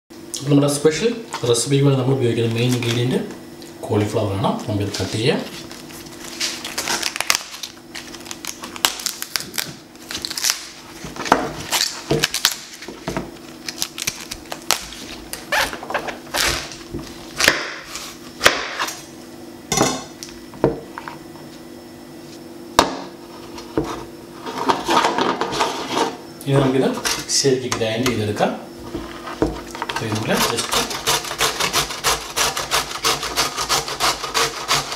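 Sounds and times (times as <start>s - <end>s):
cauliflower leaves snapping: 5.6s - 10.9s, 11.6s - 12.8s, 13.4s - 15.2s.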